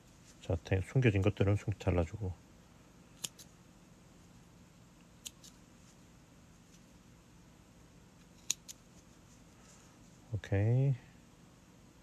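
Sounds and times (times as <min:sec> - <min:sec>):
scissors snipping: 0:03.2 - 0:03.5, 0:05.2 - 0:05.6, 0:08.2 - 0:08.8.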